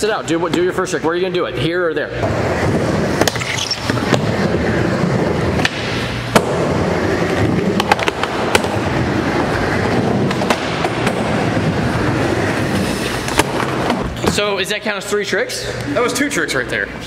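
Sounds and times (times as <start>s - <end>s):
skateboard wheels rolling on wood: 2.2s - 14.4s.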